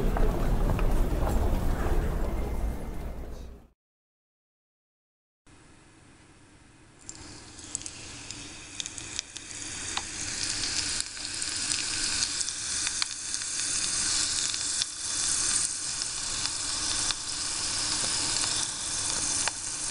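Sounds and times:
oil sizzling and popping: 7.0 - 19.9.

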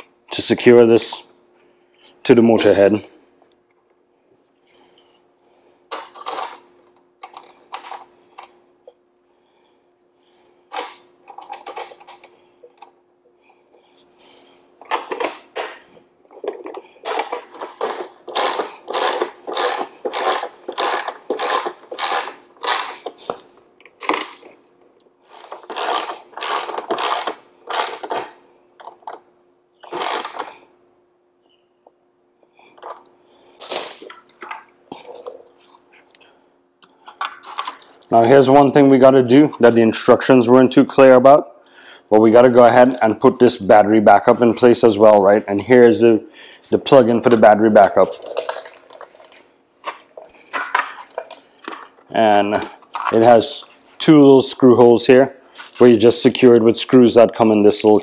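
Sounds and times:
ratchet wrench clicking: 18.3 - 23.0, 25.3 - 28.2, 29.8 - 30.5.

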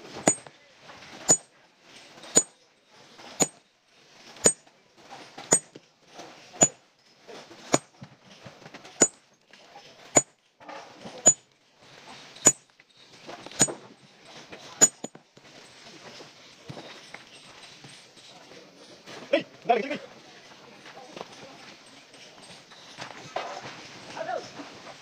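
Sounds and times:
sledgehammer striking steel wedges: 0.0 - 0.5, 1.3 - 1.5, 2.3 - 2.5, 3.4 - 3.6, 4.4 - 4.6, 5.5 - 5.7, 6.6 - 6.8, 7.7 - 7.9, 9.0 - 9.2, 12.4 - 12.6, 13.6 - 13.8, 14.8 - 15.1.

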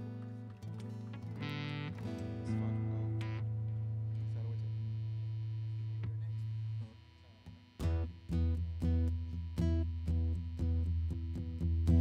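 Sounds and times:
rock band guitars: 0.0 - 4.4.

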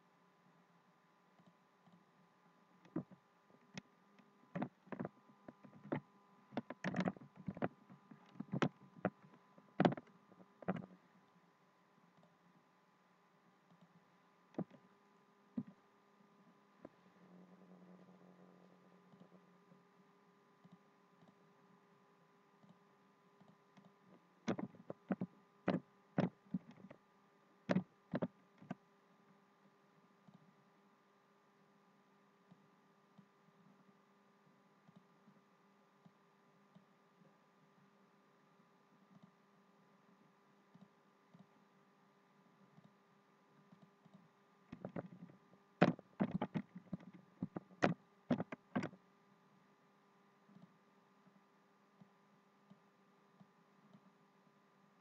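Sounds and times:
faint electrical hum: 0.0 - 55.0
keyboard and mouse clicks: 4.6 - 9.2, 9.8 - 10.9, 23.4 - 27.0, 27.7 - 28.8, 43.7 - 49.0.

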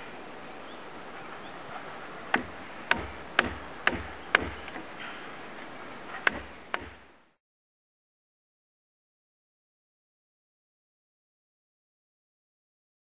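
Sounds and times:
mallet striking chisel: 2.3 - 4.9, 6.2 - 7.0.

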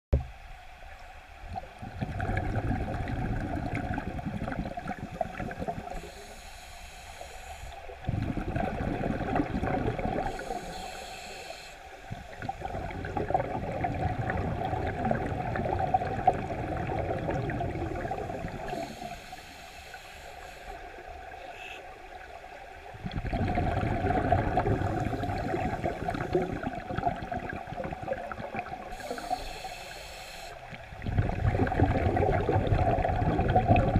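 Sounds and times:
exhaled bubbles underwater: 1.4 - 6.3, 7.8 - 11.1, 11.9 - 19.5, 20.7 - 33.9
regulator high hiss: 6.0 - 7.9, 10.3 - 12.4, 18.5 - 20.9, 28.9 - 30.7.

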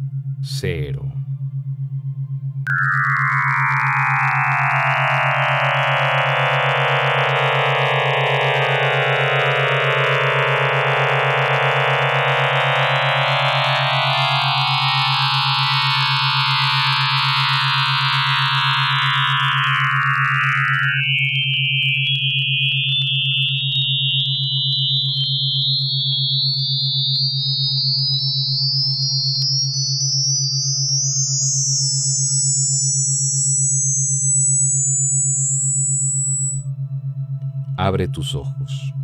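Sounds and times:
steady low drone: 0.0 - 19.9, 36.4 - 39.0.

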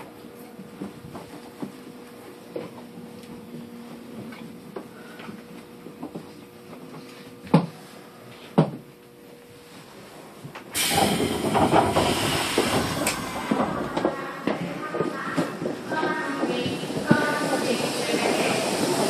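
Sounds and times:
train doors opening with hiss: 10.7 - 19.0.

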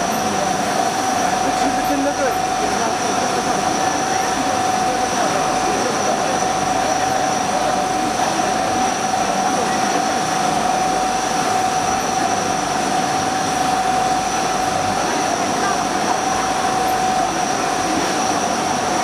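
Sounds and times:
coolant hissing and splashing: 0.0 - 19.0
lathe machine whine: 0.0 - 19.0.

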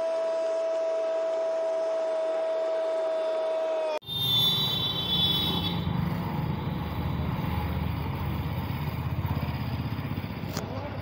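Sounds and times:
road noise: 4.0 - 11.0
vehicle engine rumble: 4.9 - 11.0.

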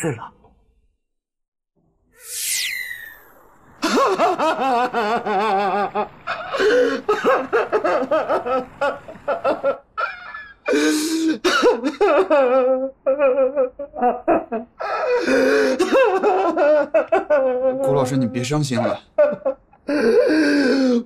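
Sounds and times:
man wailing and sobbing: 10.0 - 21.0.

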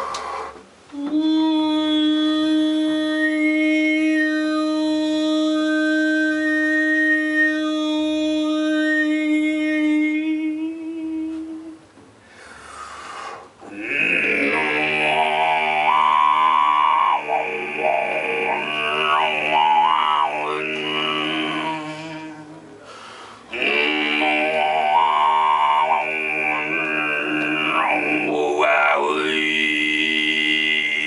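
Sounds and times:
didgeridoo drone: 13.6 - 22.8, 23.5 - 31.0
overtone singing drone: 13.6 - 22.8, 23.5 - 31.0.

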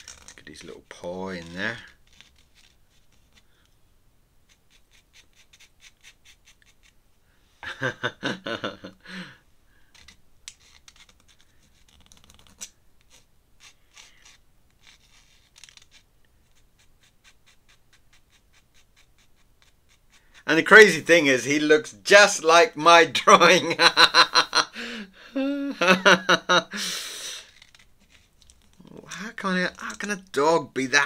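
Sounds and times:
pen scratching on paper: 0.0 - 3.5, 4.5 - 7.0, 9.9 - 21.0, 27.4 - 30.5.

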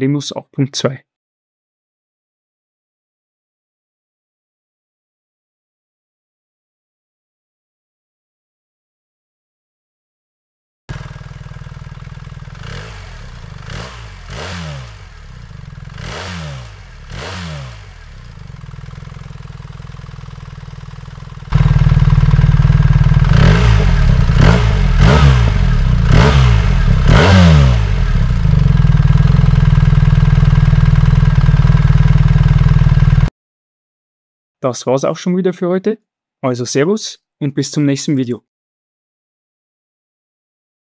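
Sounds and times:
motorcycle engine idling and revving: 10.9 - 33.3.

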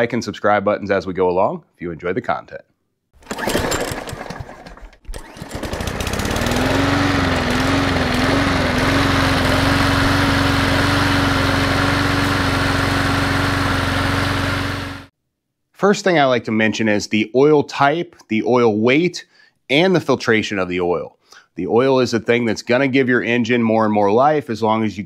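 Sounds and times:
mower engine running: 3.2 - 15.1.

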